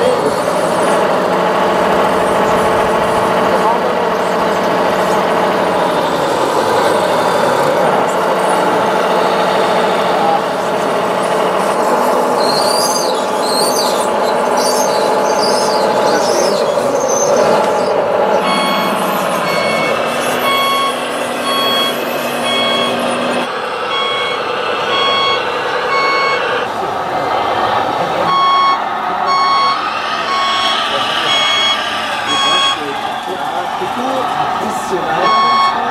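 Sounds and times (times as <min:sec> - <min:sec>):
high wavering squeals: 0:00.0 - 0:26.8, 0:27.5 - 0:35.9
reversing beeper: 0:00.0 - 0:35.9
simulated diesel engine running: 0:00.0 - 0:35.9.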